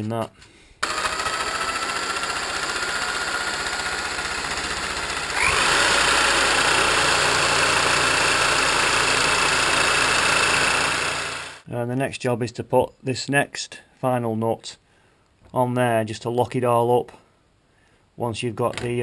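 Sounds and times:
electric drill whining: 0.8s - 11.6s.

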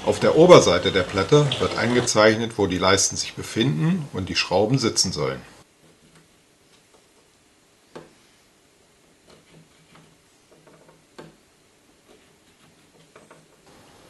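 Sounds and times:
pencil tapping and scraping: 5.8s - 7.3s, 9.0s - 11.4s, 12.0s - 13.6s.

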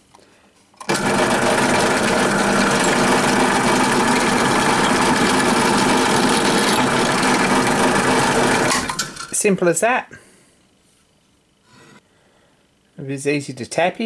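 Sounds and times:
pillar drill boring metal: 0.9s - 9.3s.

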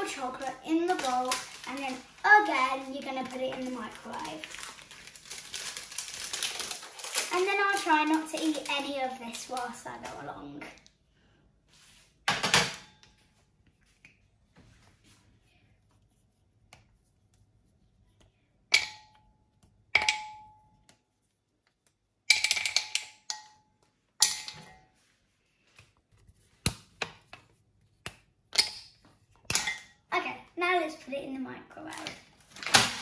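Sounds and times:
chocolate snapping: 28.0s - 29.0s.

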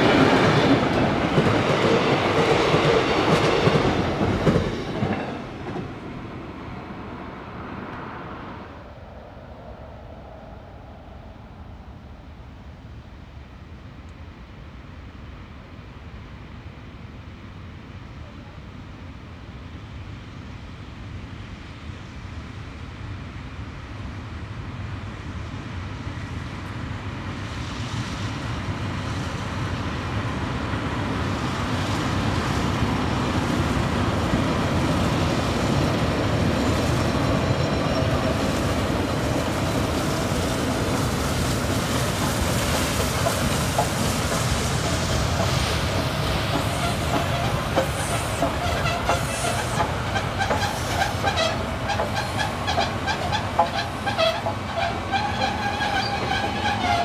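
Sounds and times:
steam locomotive rumbling: 0.0s - 12.5s, 24.6s - 57.0s
carriage wheels clickety-clack: 42.6s - 57.0s.

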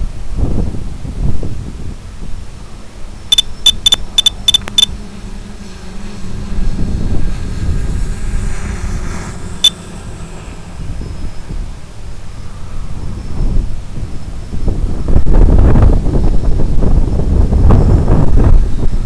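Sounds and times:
wind buffeting microphone: 0.0s - 19.0s
short high electronic beeps: 3.3s - 4.9s.

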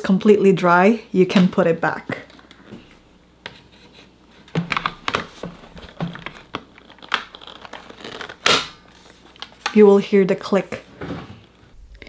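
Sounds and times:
plastic parts knocking and rattling: 4.5s - 7.9s.

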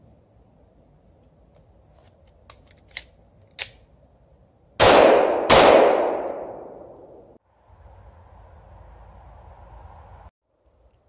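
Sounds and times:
pistol shots with echo: 4.8s - 7.3s.

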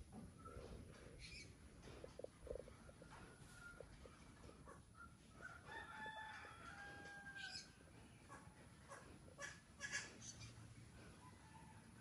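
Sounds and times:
rooster crowing: 5.4s - 7.7s.

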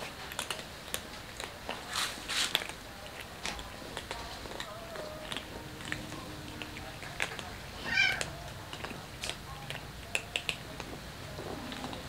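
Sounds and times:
cats crunching dry kibble: 0.0s - 12.0s
cat meowing: 7.8s - 8.4s.

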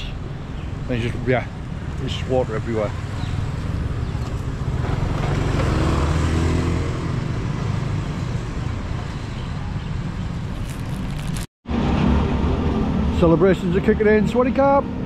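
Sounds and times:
low rumble of road noise: 0.0s - 15.0s
vehicle engine passing: 4.6s - 8.0s.

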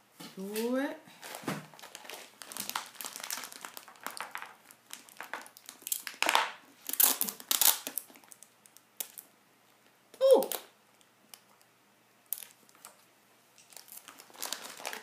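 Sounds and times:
plastic bag crinkling: 1.2s - 9.3s, 12.3s - 13.0s, 13.6s - 15.0s.

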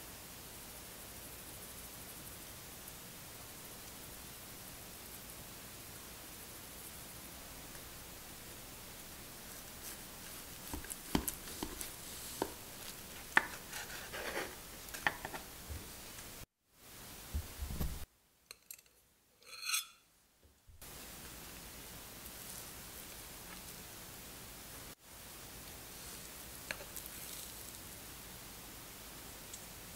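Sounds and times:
knife cutting through cake: 9.8s - 15.4s
fork scraping on plate: 11.5s - 15.4s, 19.4s - 20.0s.

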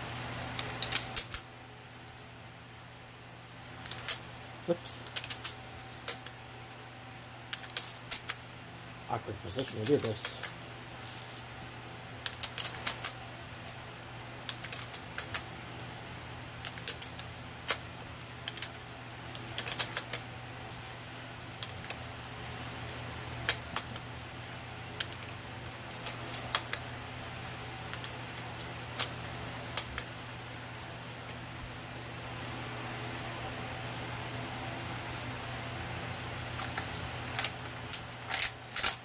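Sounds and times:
metallic clicks of cartridges loading: 0.6s - 1.4s, 3.8s - 4.2s, 5.0s - 6.4s, 7.5s - 8.4s, 12.2s - 13.2s, 14.4s - 16.0s, 16.6s - 20.8s, 21.6s - 22.0s, 23.3s - 24.0s, 25.0s - 26.8s, 27.9s - 30.1s, 36.6s - 39.0s.

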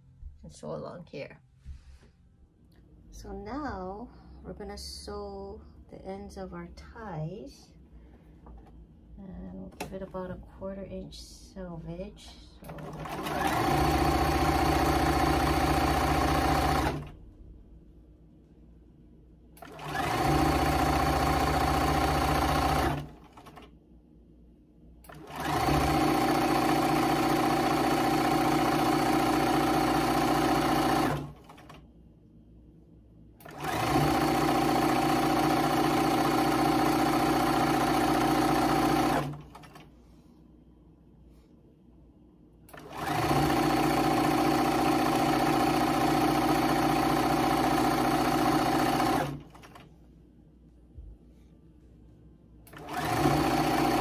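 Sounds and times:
sewing machine stitching: 12.6s - 17.2s, 19.6s - 23.7s, 25.1s - 31.8s, 33.4s - 39.9s, 42.7s - 49.9s, 52.7s - 54.0s.

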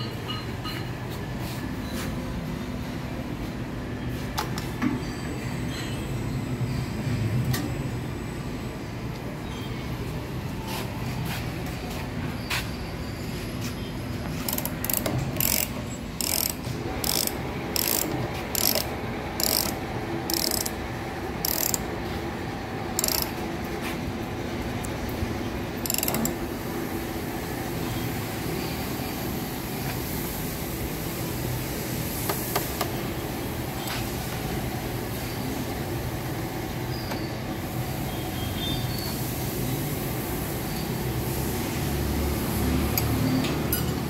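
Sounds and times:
ratchet wrench clicking: 14.4s - 20.8s, 21.4s - 21.9s, 23.0s - 23.4s, 25.8s - 26.5s.

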